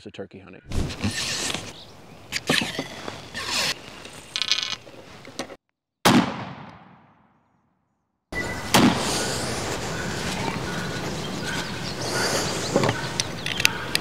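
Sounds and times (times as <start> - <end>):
shotgun blast: 6.0 - 7.3, 8.7 - 9.1.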